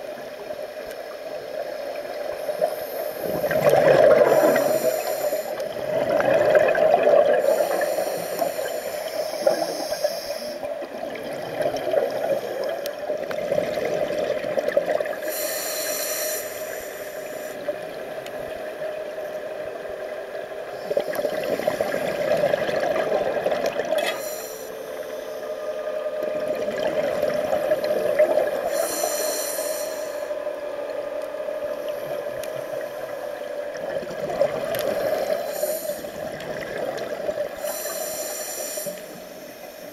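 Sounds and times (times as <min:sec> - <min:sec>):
steady underwater drone: 0:00.0 - 0:39.9
scuba regulator inhalation hiss: 0:01.0 - 0:05.8, 0:07.3 - 0:10.7, 0:15.1 - 0:17.7, 0:24.0 - 0:25.9, 0:27.5 - 0:30.5, 0:34.9 - 0:36.5, 0:37.4 - 0:39.9
exhaled air bubbling: 0:02.6 - 0:18.9, 0:20.4 - 0:24.7, 0:25.8 - 0:39.9.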